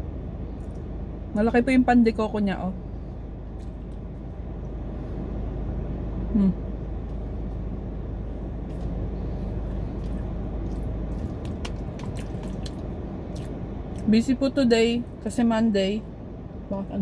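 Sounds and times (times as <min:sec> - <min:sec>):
car air conditioning hum: 0:00.0 - 0:17.0
person murmuring: 0:06.3 - 0:06.6.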